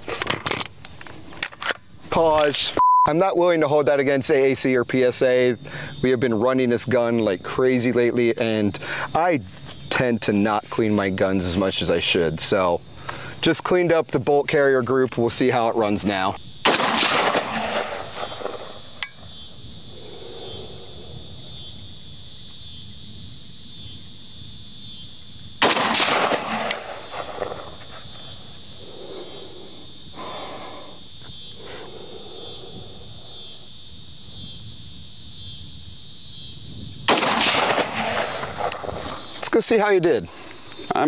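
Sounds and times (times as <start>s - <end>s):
insects buzzing: 0.0s - 41.0s
rifle shot ringing out: 16.6s - 18.8s, 25.6s - 28.0s, 37.1s - 38.8s.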